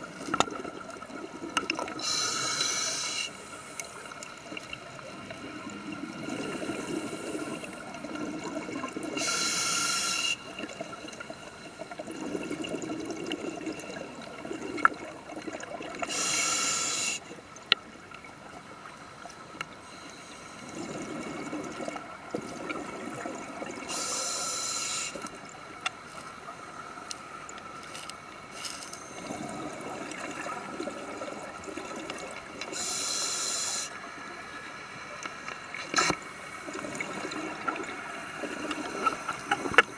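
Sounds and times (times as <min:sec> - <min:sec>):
underwater bubbles rumbling: 0:10.6 - 0:16.0.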